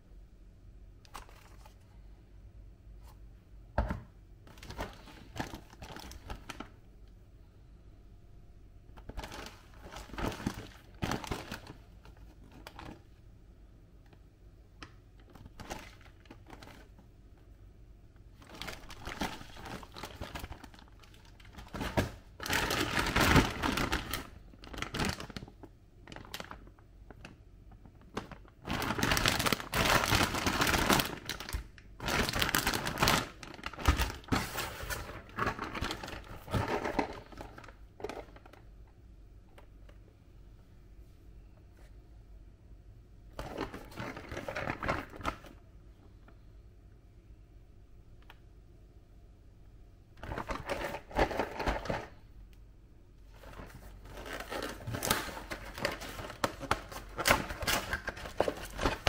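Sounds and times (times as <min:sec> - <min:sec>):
plastic bag crinkling: 0:04.5 - 0:06.8, 0:09.0 - 0:13.2, 0:15.1 - 0:17.0, 0:18.4 - 0:38.7, 0:43.4 - 0:45.6, 0:50.2 - 0:52.2, 0:53.3 - 0:59.0.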